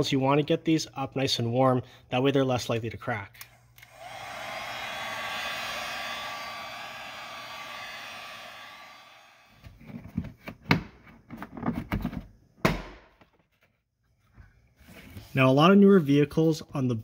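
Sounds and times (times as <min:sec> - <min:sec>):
heat gun whining: 0:03.8 - 0:09.7.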